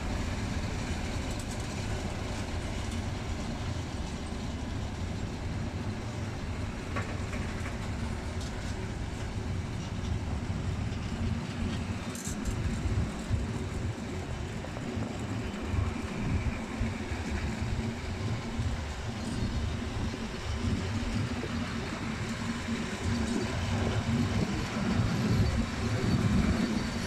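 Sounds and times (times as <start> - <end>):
diesel locomotive engine running: 0.0 - 27.0
wagons rolling over rails: 6.1 - 27.0.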